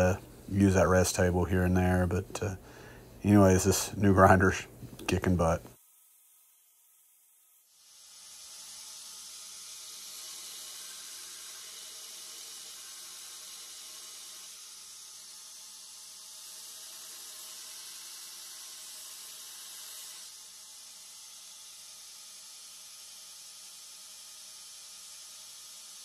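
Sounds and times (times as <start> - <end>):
belt grinder grinding steel: 8.0 - 23.5.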